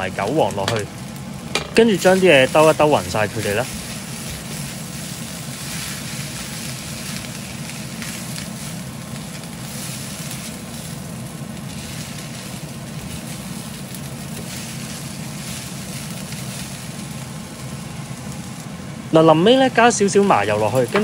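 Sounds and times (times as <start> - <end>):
food sizzling in a wok: 0.0 - 21.0
steady low hum: 0.0 - 21.0
spatula tossing food: 1.8 - 11.0.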